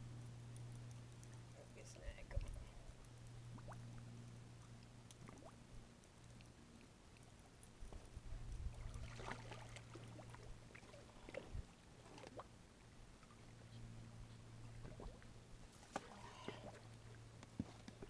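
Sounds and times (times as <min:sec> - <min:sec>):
light water splashing: 0:00.0 - 0:18.0
low steady hum: 0:00.0 - 0:18.0
small clicks: 0:00.1 - 0:01.6.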